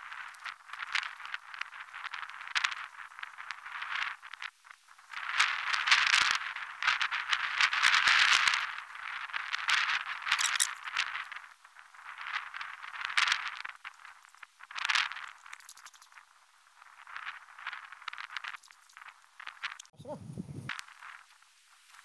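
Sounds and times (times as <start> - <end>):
basket trap creaking and rattling: 10.3 - 10.9
scraping and clicking: 10.3 - 11.1, 13.8 - 16.2.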